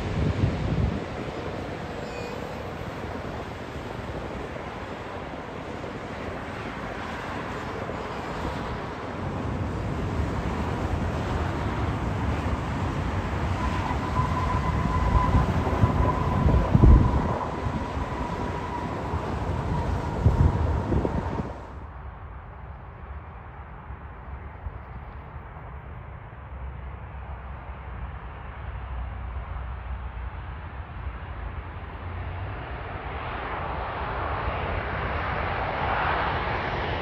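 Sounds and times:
wind buffeting microphone: 0.0 - 2.0, 2.6 - 21.8
jet engine rush: 0.0 - 21.9, 30.1 - 37.0.

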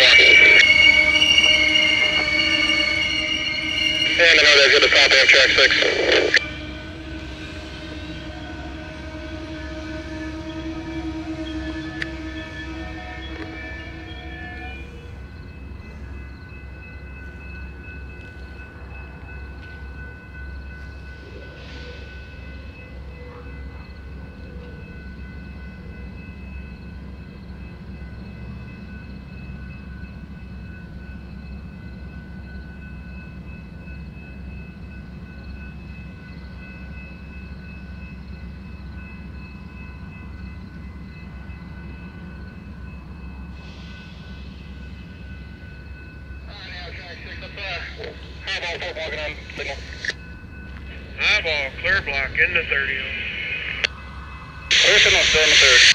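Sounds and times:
high-pitched whines: 0.0 - 9.0, 47.2 - 55.9
diesel locomotive idling rumble: 0.0 - 22.5, 41.0 - 55.9.

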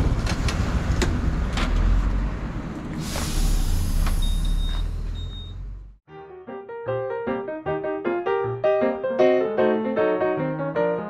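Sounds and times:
road noise: 0.0 - 6.0
loud hiss: 3.0 - 4.5.

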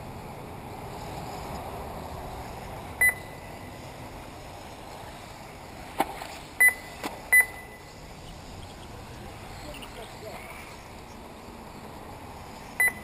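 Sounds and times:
low steady background noise: 0.0 - 13.0
short high electronic beeps: 12.8 - 13.0.

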